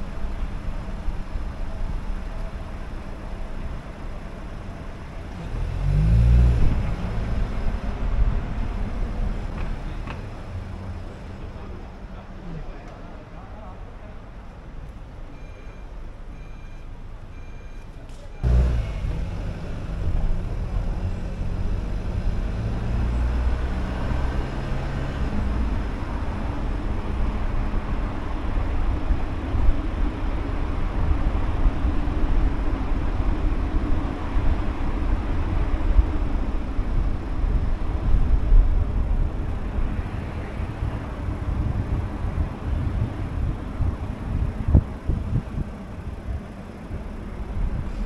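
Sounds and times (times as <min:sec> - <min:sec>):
engine and tyres rumbling: 0:00.0 - 0:48.0
low engine drone: 0:18.4 - 0:48.0.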